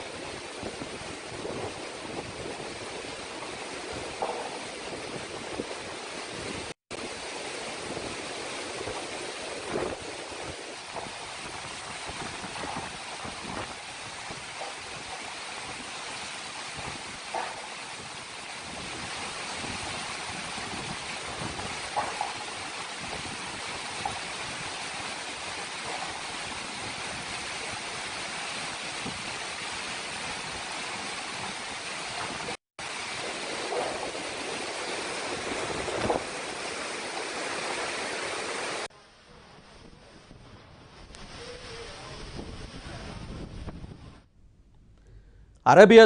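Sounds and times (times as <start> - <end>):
rain: 0.0 - 43.8
rough sea: 0.0 - 44.3
wind rushing: 32.1 - 38.9, 39.6 - 44.3.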